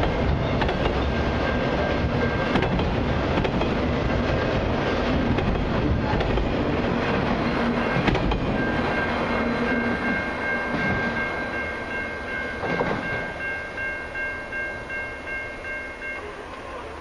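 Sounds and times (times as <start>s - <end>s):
level-crossing warning bell: 0.0s - 3.2s, 6.8s - 17.0s
freight train rumbling: 0.0s - 17.0s.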